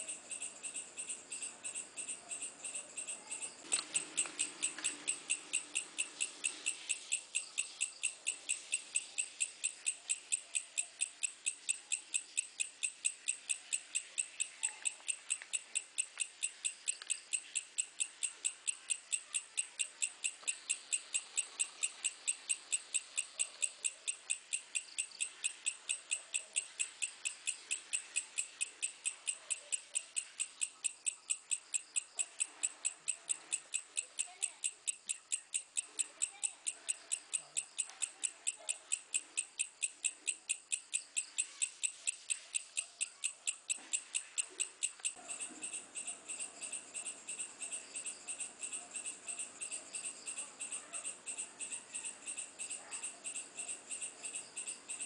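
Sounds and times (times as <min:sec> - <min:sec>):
insect chirping: 0:00.0 - 0:55.0.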